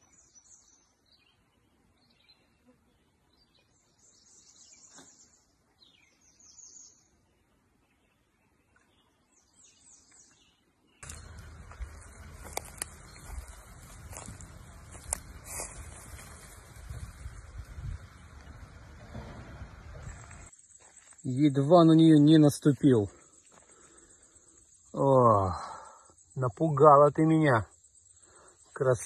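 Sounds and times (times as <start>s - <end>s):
faint birdsong chirping: 0.0s - 29.0s
footsteps in dry leaves: 11.0s - 18.8s.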